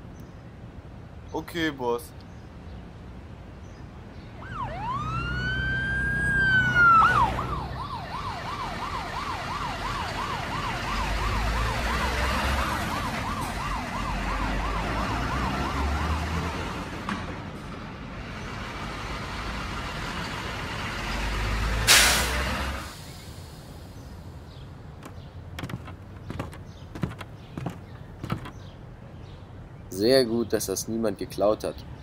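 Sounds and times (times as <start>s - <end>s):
siren wailing: 4.4s - 16.4s
loud sharp hiss: 21.9s - 24.1s.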